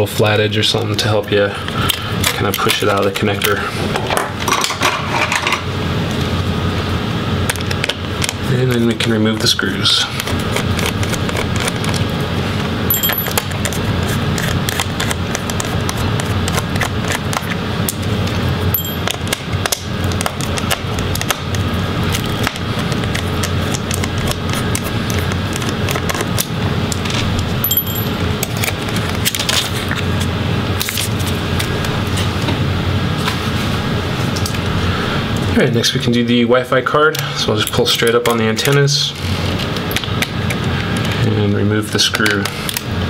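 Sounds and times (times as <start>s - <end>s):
small metal screws clattering: 12.9s - 13.4s, 27.6s - 28.1s.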